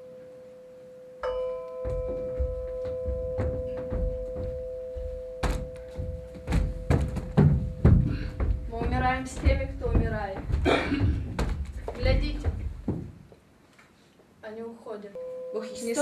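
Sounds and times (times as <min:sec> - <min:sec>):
bell-like tone: 0:00.0 - 0:07.2, 0:15.2 - 0:16.0
sharp knocks: 0:01.8 - 0:13.2
low thuds: 0:01.8 - 0:13.3.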